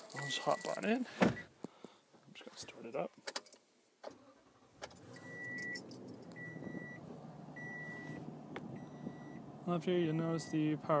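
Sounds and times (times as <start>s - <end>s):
dashboard warning chime beeps: 0.2s - 0.9s, 5.2s - 7.0s, 7.6s - 8.2s, 8.8s - 9.5s, 10.1s - 10.7s
keys jangling: 5.0s - 6.4s.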